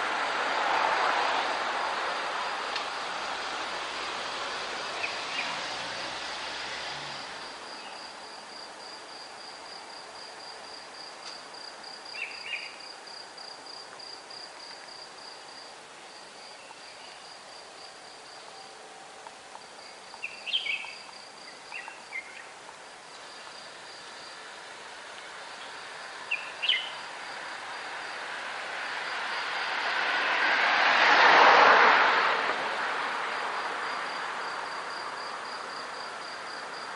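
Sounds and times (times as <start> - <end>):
city noise hum: 0.0 - 36.9
bird chirps: 12.1 - 12.8, 20.2 - 22.5, 26.3 - 27.0.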